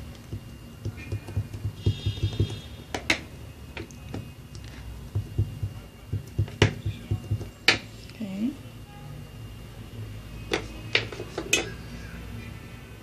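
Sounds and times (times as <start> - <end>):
soft thumps of dough pressed: 0.3 - 2.6, 5.1 - 7.8.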